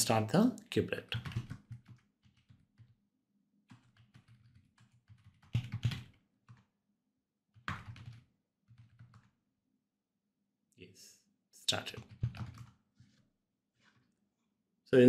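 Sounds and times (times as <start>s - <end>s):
computer keyboard keystrokes: 1.1s - 3.0s, 3.7s - 6.7s, 7.6s - 9.3s, 11.8s - 12.8s.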